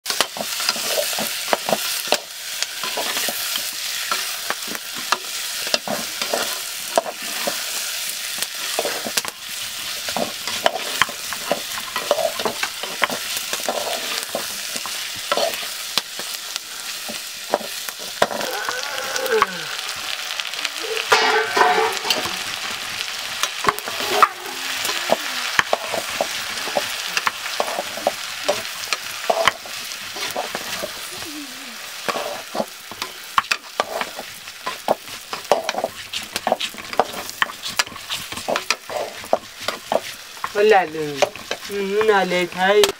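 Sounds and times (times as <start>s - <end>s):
meat sizzling in a pot: 0.0s - 42.9s
metal spatula scraping a pot: 0.1s - 19.2s, 21.0s - 22.6s, 23.4s - 31.0s, 32.0s - 42.6s
brief pitched call: 18.4s - 20.0s.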